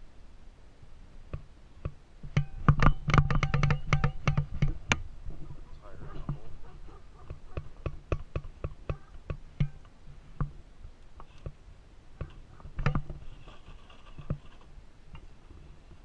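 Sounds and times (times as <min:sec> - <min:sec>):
rc car clattering on rubble: 0:12.2 - 0:14.7.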